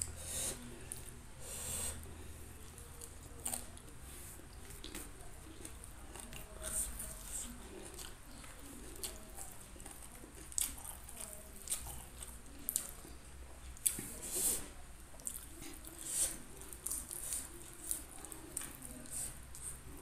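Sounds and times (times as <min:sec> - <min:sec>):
soft wet chewing: 0:00.0 - 0:20.0
crunching fried chicken: 0:00.7 - 0:20.0.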